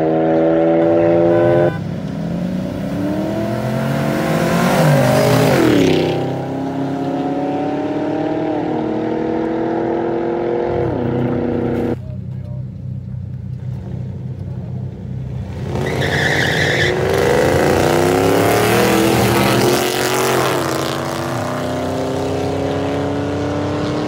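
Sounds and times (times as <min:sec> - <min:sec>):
car engines revving: 0:00.0 - 0:24.0
car engines idling: 0:00.3 - 0:07.2, 0:10.4 - 0:19.8.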